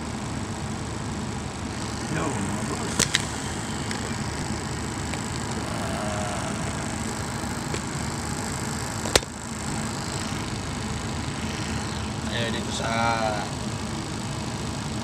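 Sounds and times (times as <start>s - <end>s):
vehicle engine running: 1.5s - 14.2s
sharp click: 2.8s - 5.5s.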